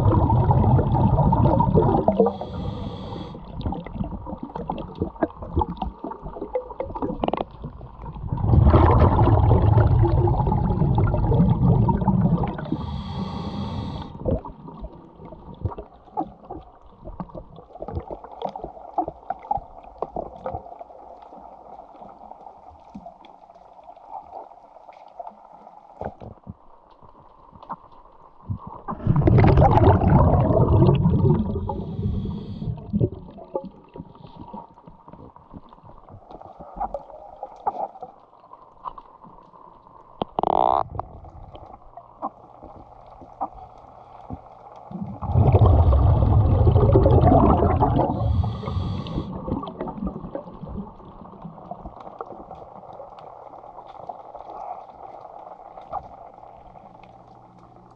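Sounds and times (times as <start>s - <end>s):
diver's breath bubbles: 0.0s - 18.4s, 28.5s - 35.3s, 40.3s - 52.4s
regulator hiss: 2.3s - 3.4s, 12.7s - 14.2s, 48.2s - 49.3s
faint clicks: 33.5s - 45.0s, 51.3s - 57.9s.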